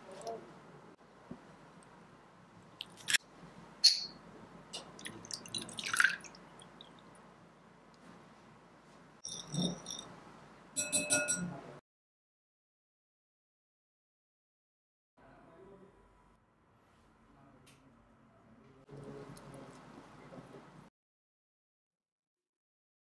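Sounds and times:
liquid pouring into bowl: 0:04.8 - 0:07.2
metal utensil beating in glass bowl: 0:09.2 - 0:10.1, 0:10.8 - 0:11.6.

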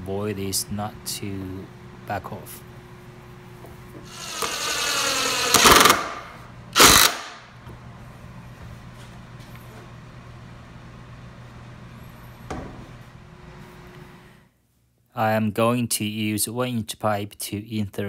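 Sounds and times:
cordless drill boring into wood: 0:04.1 - 0:06.2, 0:06.8 - 0:07.4.

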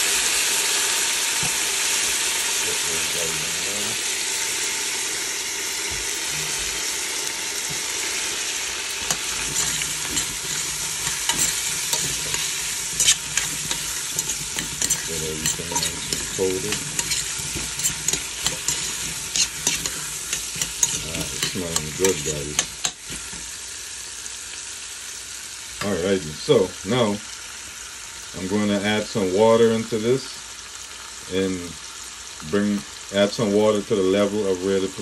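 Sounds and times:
potatoes sizzling in oil: 0:00.0 - 0:35.0
utensil scraping a pot: 0:01.3 - 0:24.3.

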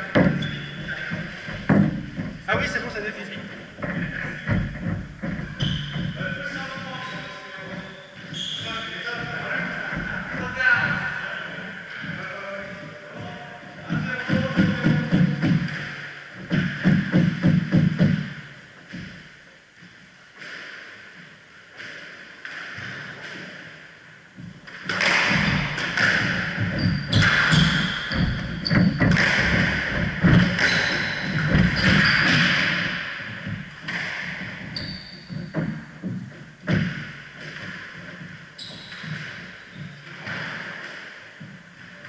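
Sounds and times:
shoes squeaking on wooden floor: 0:00.0 - 0:19.3, 0:24.4 - 0:42.0
squash ball smacking: 0:24.7 - 0:41.0.

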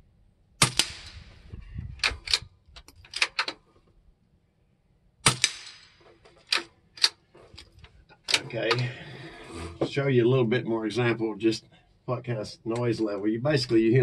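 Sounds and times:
bullet striking steel target: 0:00.6 - 0:01.4, 0:05.2 - 0:06.2
rifle shot snap: 0:00.6 - 0:01.4, 0:05.2 - 0:06.1
rifle bolt clicks: 0:02.0 - 0:03.6, 0:06.3 - 0:07.7.

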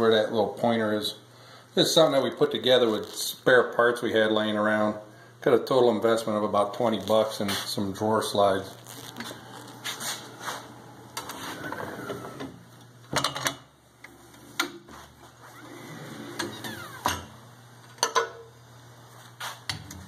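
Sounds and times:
screen printer clicks and scrapes: 0:15.8 - 0:17.3.

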